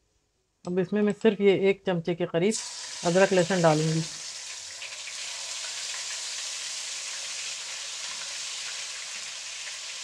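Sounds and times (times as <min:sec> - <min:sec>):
paste sizzling in hot oil: 0:02.6 - 0:10.0.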